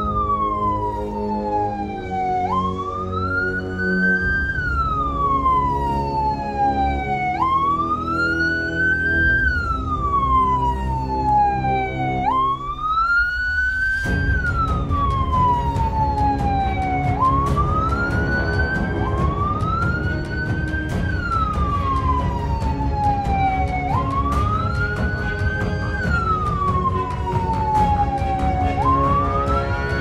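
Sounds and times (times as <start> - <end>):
electronic siren wailing: 0.0 - 30.0
music with steady beat: 14.1 - 30.0.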